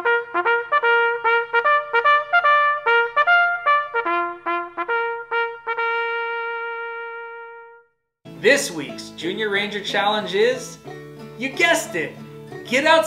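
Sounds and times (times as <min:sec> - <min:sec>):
brass fanfare jingle: 0:00.0 - 0:07.9.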